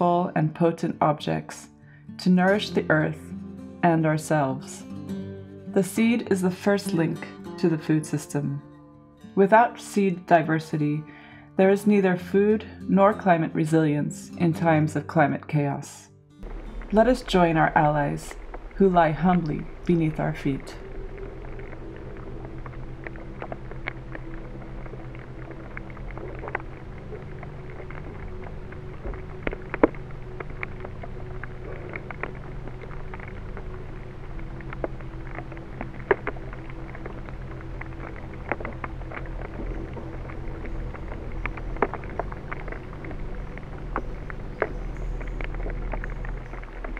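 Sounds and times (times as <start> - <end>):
low steady hum: 0.0 - 46.9
sharp clicks and crackles: 16.4 - 18.8, 19.4 - 46.9.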